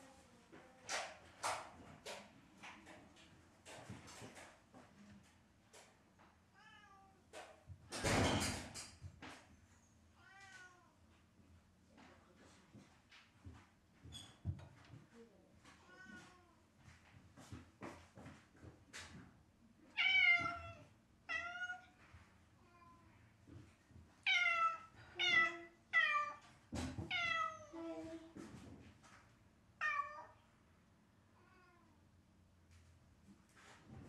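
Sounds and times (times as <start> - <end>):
cat meowing: 19.9 - 22.0, 24.3 - 26.4, 27.1 - 27.8, 29.8 - 30.4.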